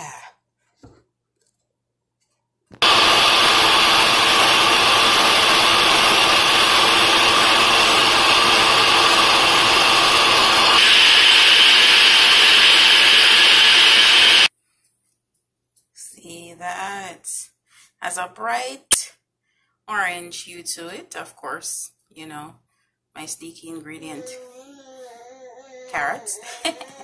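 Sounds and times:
blender motor running: 2.8s - 14.5s.

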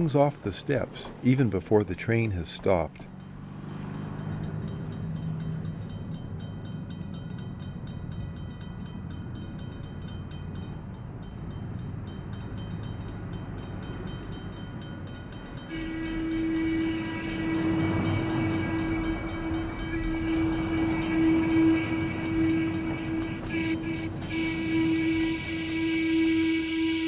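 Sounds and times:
train rumbling: 0.0s - 27.0s
train horn: 15.7s - 27.0s.

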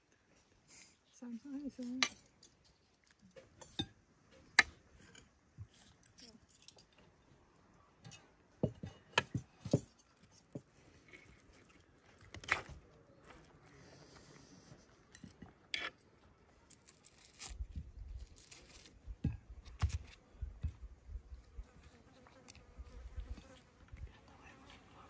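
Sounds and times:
cutlery clinking and scraping on plate: 3.5s - 3.9s.

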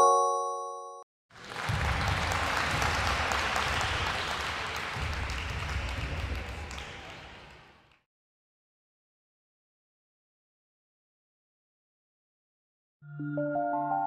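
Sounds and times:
short chime: 0.0s - 1.0s
crowd applause: 1.3s - 8.0s.

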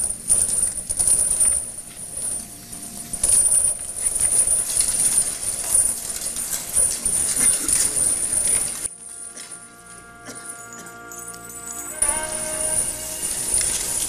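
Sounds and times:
steady high hiss: 1.7s - 14.0s
crowd scuffling and clattering: 3.8s - 9.6s.

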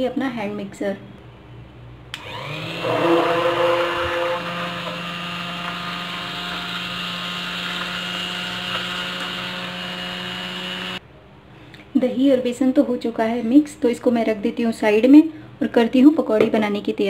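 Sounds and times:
hand blender whirring: 2.2s - 11.0s.

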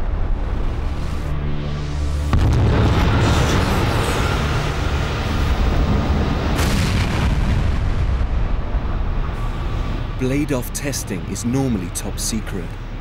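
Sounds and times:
jet engine roaring: 2.4s - 12.2s.

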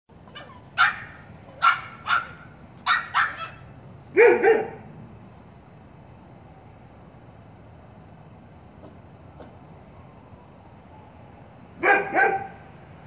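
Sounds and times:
puppies yapping: 0.1s - 4.8s.

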